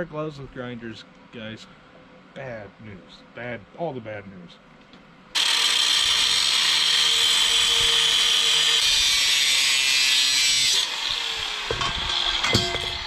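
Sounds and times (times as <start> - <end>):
angle grinder cutting steel: 5.4 - 13.0.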